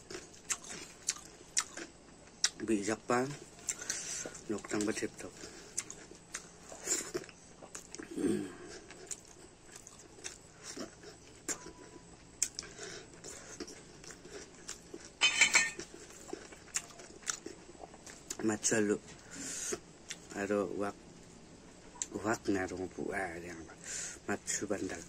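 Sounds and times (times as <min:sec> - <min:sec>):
person chewing food: 0:00.0 - 0:02.6, 0:03.5 - 0:18.4.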